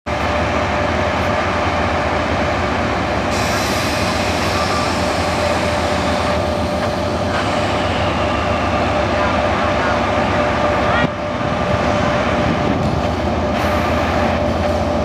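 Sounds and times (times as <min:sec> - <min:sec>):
diesel locomotive engine drone: 0:00.0 - 0:15.0
moving train hiss: 0:03.1 - 0:15.0.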